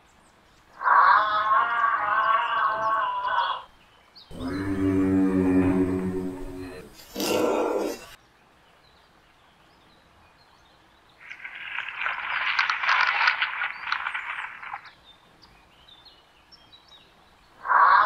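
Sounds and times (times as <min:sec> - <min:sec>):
rough pulsing animal call: 0:00.8 - 0:03.7, 0:04.3 - 0:08.2, 0:17.6 - 0:18.0.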